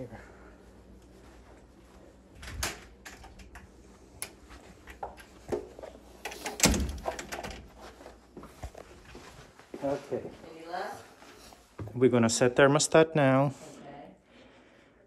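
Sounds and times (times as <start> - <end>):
door opening and shutting: 2.4 - 3.6, 6.2 - 7.7.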